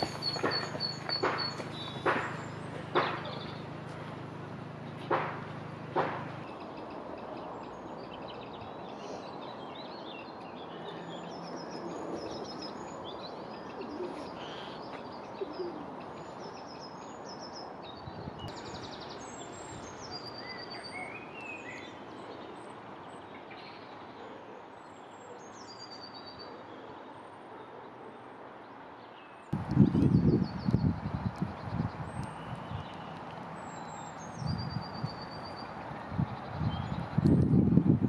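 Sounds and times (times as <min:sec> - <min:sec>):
outdoor background rush: 0:00.0 - 0:38.0
songbirds chirping: 0:00.0 - 0:38.0.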